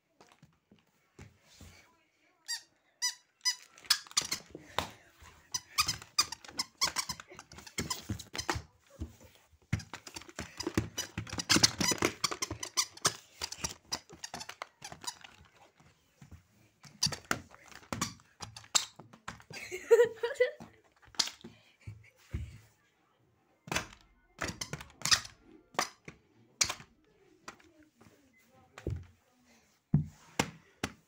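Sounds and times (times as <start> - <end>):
plush toy squeaking: 2.5 - 4.6.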